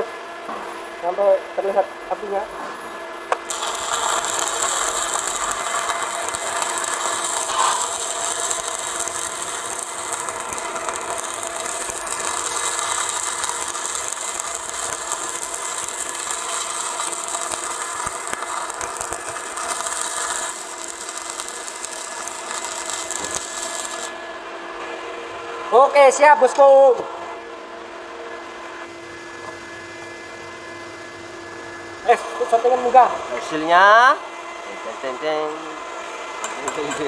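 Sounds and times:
welding arc crackling hiss: 3.3s - 24.2s, 36.4s - 37.0s.

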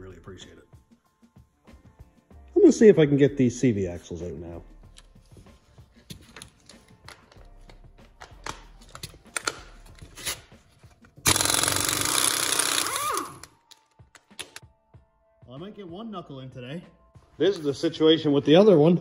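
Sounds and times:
air impact wrench hammering: 11.2s - 13.5s.

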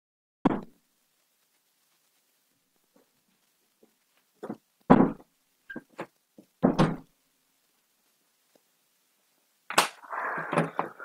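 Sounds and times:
heavy thumps: 4.4s - 5.3s.

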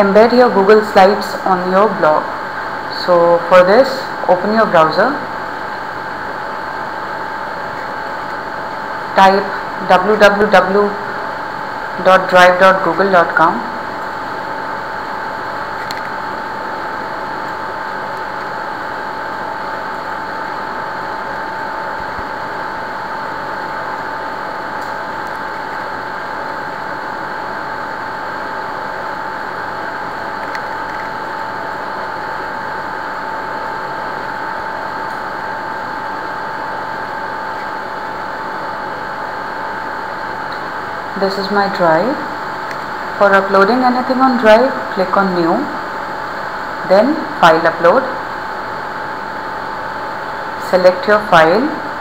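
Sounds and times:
machine whirring hum: 0.0s - 52.0s.

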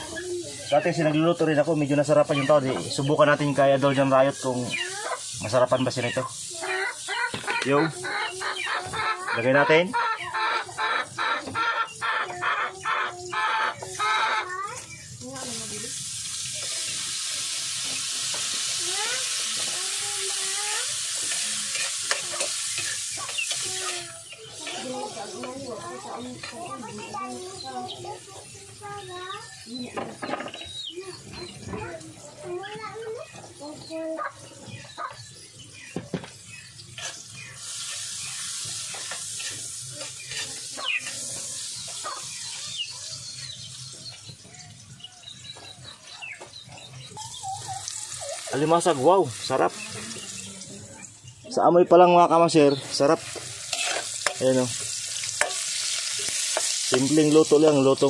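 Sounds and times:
food sizzling in a pan: 0.0s - 58.0s.

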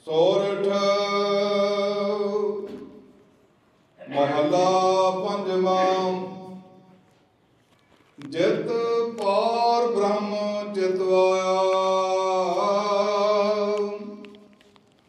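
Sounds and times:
man chanting a prayer: 0.0s - 2.7s, 4.0s - 6.6s, 8.2s - 14.2s.

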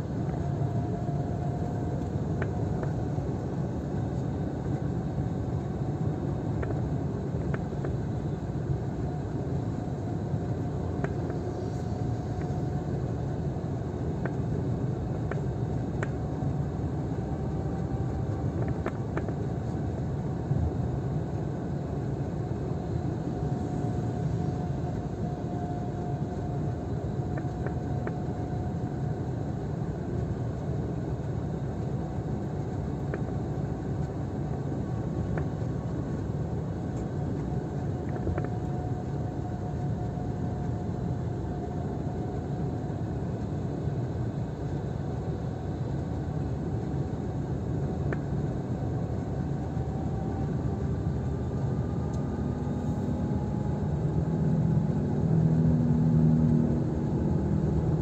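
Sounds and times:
faint whine: 0.0s - 58.0s
engine and tyre rumble: 47.7s - 58.0s.

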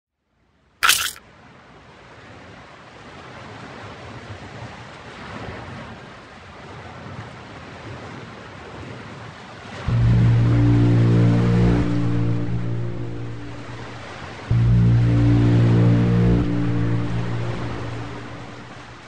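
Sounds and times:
loud music: 9.9s - 19.0s.

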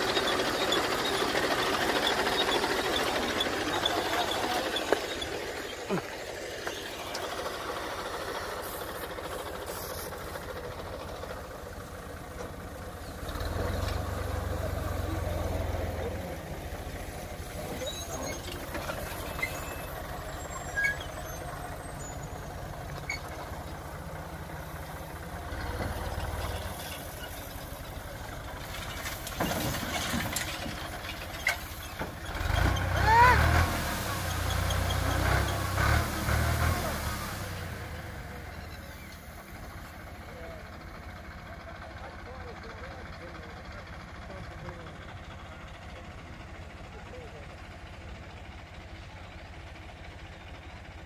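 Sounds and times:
tractor diesel engine running: 0.0s - 51.0s.

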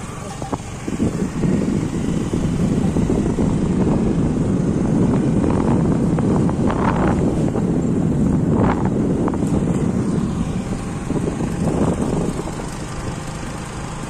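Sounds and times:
motor scooter running: 0.0s - 14.0s
road noise: 0.0s - 14.0s
wind rush on microphone: 0.0s - 14.0s.

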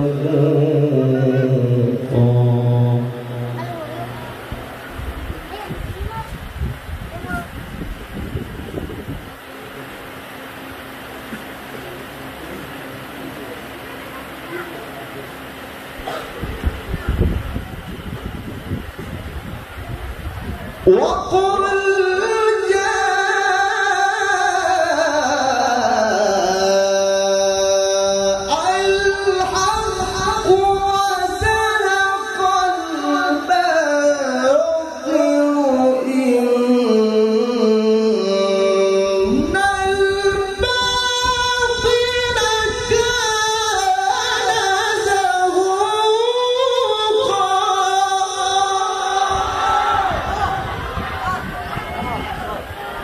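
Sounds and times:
man reciting into a microphone: 0.0s - 3.8s, 20.8s - 49.6s.

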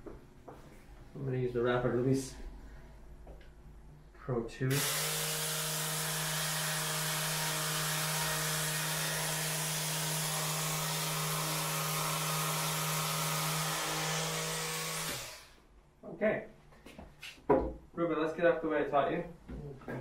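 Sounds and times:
massage device buzzing: 13.8s - 15.5s.

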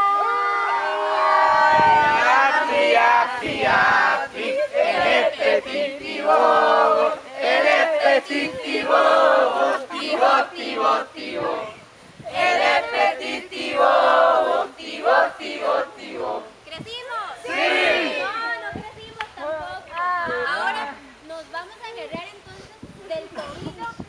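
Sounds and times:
group chanting a game song: 0.3s - 16.6s, 17.4s - 18.3s.

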